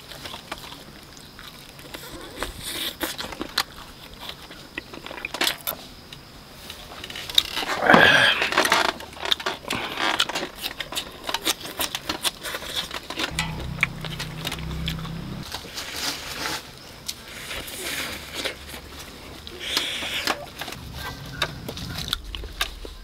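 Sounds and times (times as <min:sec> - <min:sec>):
low steady hum: 0:13.3 - 0:15.5.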